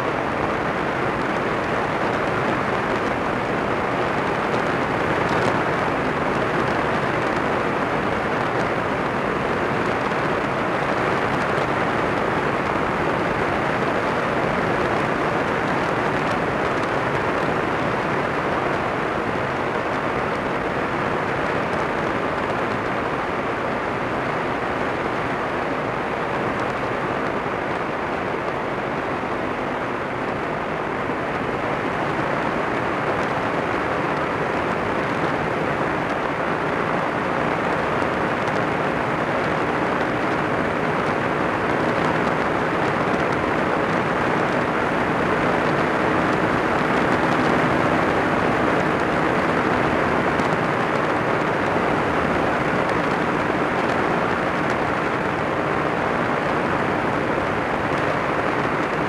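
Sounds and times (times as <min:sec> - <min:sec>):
aircraft engine and propeller: 0:00.0 - 0:59.0.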